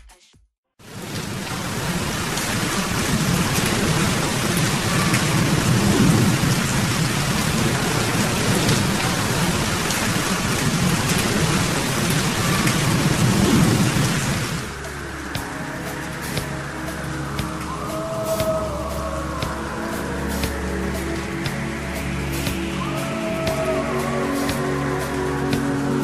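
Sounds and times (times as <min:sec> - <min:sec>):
heavy rain pouring: 0:00.8 - 0:26.0
low rumble of thunder: 0:01.0 - 0:14.8.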